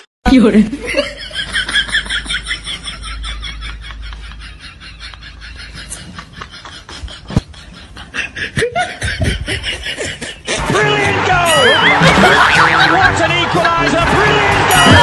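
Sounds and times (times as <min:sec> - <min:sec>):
snickering laughter: 0:00.8 - 0:10.7, 0:11.6 - 0:13.6.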